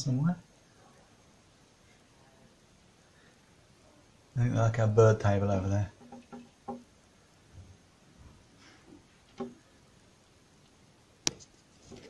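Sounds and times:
bird beak tapping on window: 0:05.9 - 0:06.9, 0:09.3 - 0:09.6.

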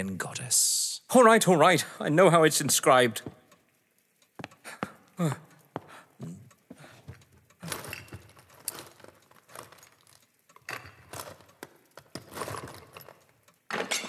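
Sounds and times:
small objects clinking and rattling: 0:07.6 - 0:14.0.

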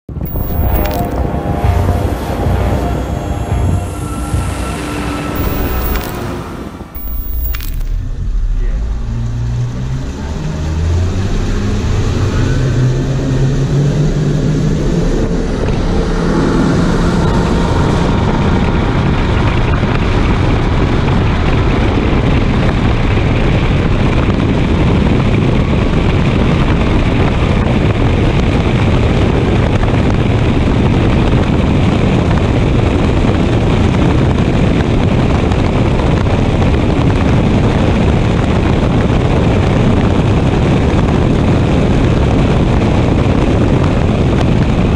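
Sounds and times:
rush of wind and water: 0:17.6 - 0:44.9.

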